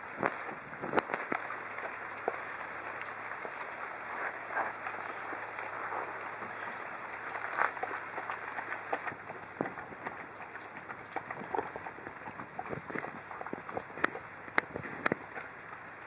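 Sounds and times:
dog chewing and slurping food: 0.0 - 16.0.

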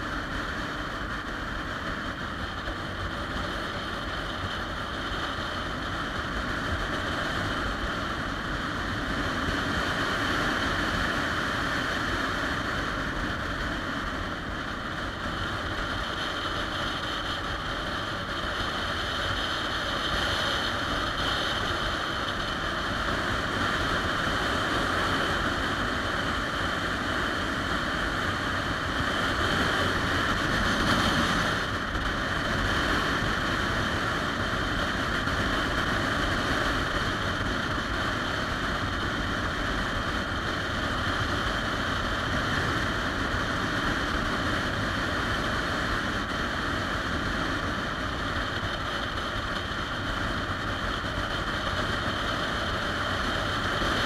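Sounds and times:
motorcycle engine running: 0.0 - 54.0
wind and road noise: 0.0 - 54.0.

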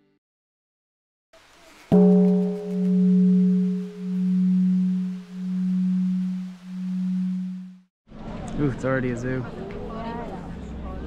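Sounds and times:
deep bell ringing: 1.9 - 7.8.

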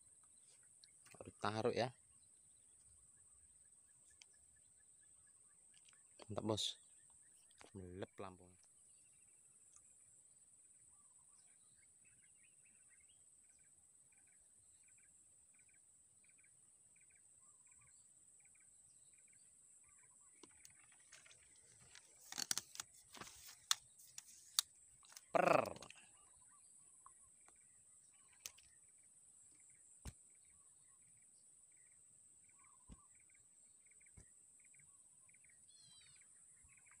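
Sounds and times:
short falling bird call: 25.1 - 26.2.

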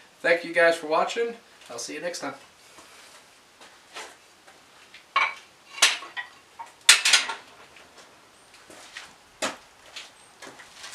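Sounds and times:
metal tools clanking on workbench: 6.9 - 7.4.

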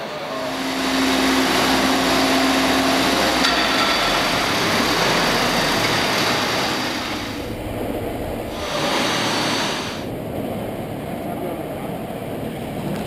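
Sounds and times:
motor and hydraulic pump running: 0.0 - 10.2
faint steady whine: 0.0 - 13.0.

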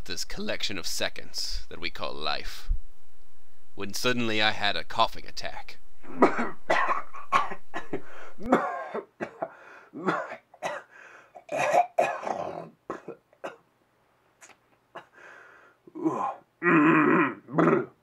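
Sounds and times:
man clearing throat: 6.0 - 13.6, 15.9 - 18.0
man coughing: 6.1 - 13.6.

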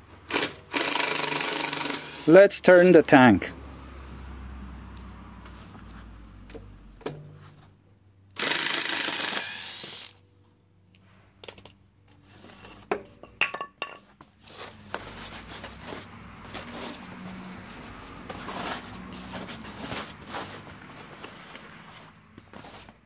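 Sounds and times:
foam packing sheets rustling: 14.4 - 23.0.

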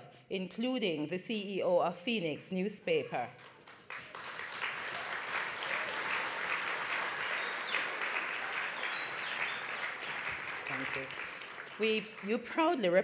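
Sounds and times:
audience applauding: 3.4 - 12.6.

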